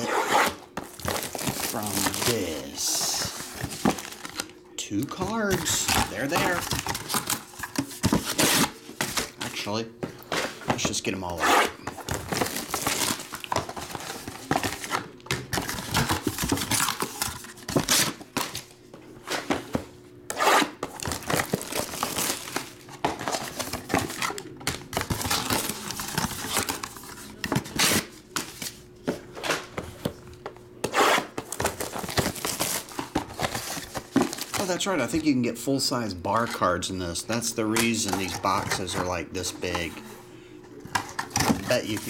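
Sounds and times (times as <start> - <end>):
plastic wrap crinkling and tearing: 0.0 - 4.6, 12.0 - 18.4, 20.9 - 28.1, 31.5 - 34.8.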